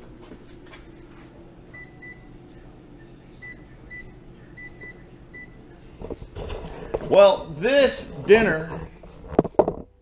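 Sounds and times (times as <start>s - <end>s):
low steady hum: 0.0s - 10.0s
microwave keypad beeps: 1.7s - 2.3s, 3.4s - 5.6s.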